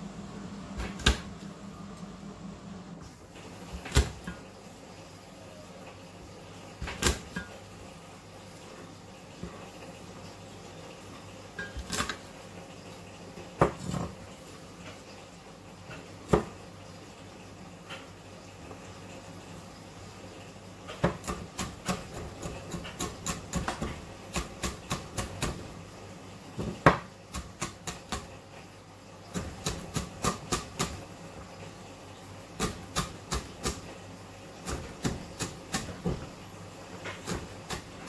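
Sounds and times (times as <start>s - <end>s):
knife chopping on cutting board: 26.6s - 28.3s, 29.4s - 31.0s, 32.6s - 33.8s, 34.6s - 36.3s, 37.1s - 38.0s.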